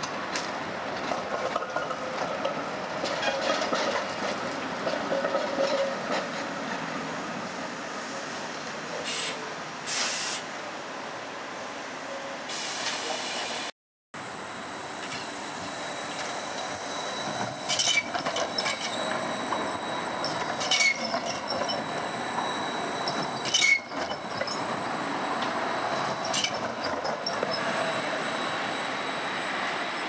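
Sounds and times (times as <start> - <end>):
tram wheels knocking: 0.0 - 6.5
tram rolling noise: 0.0 - 30.0
thin high wheel squeal: 14.5 - 30.0.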